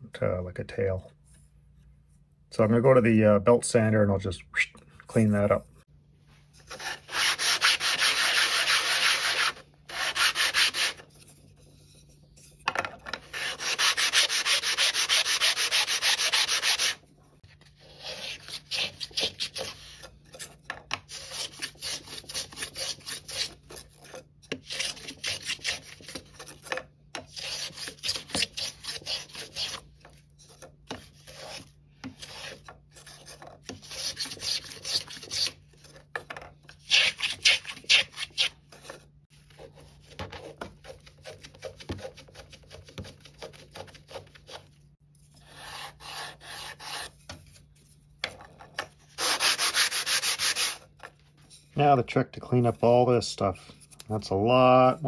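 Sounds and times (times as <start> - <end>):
hand plane shaving wood: 6.6 - 11.0, 13.3 - 17.0, 21.1 - 29.8, 30.4 - 35.6, 45.4 - 47.2, 49.2 - 50.8
wood rubbed on sandpaper: 6.7 - 11.0, 13.3 - 17.0, 49.2 - 50.8.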